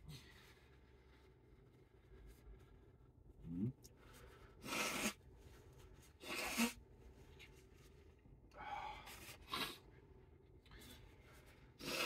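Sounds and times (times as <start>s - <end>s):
man blowing his nose: 4.6s - 5.2s, 6.2s - 6.8s, 11.8s - 12.0s.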